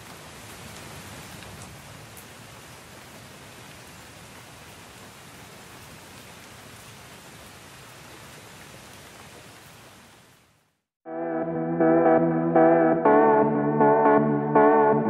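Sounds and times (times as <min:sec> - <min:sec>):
steady rain falling: 0:00.0 - 0:10.8.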